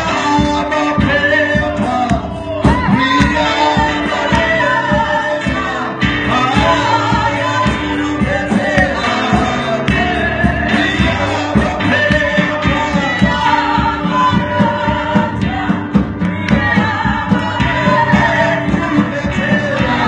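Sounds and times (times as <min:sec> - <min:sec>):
amplified instrumental backing: 0:00.0 - 0:20.0
group singing gospel song: 0:00.0 - 0:20.0.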